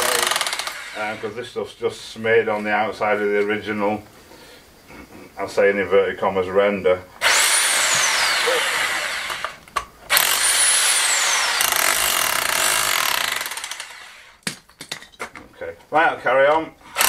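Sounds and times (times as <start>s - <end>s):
demolition hammer chipping stone: 0.0s - 1.1s.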